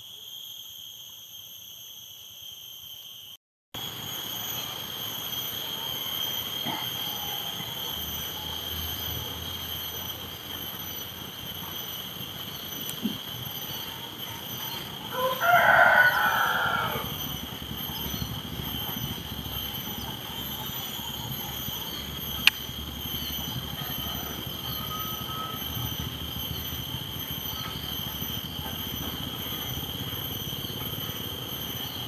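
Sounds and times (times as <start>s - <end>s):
high-pitched drone: 6.6s - 32.0s
rooster crowing: 13.2s - 19.8s, 23.2s - 26.7s
sharp click: 22.4s - 22.6s.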